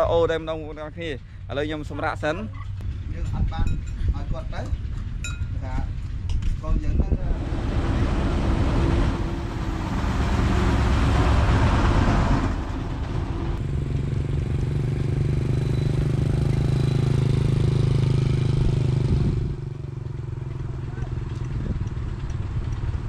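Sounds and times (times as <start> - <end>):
motorbike engine running: 2.6 - 23.0
wind rushing over microphone: 2.8 - 13.6, 18.0 - 19.7.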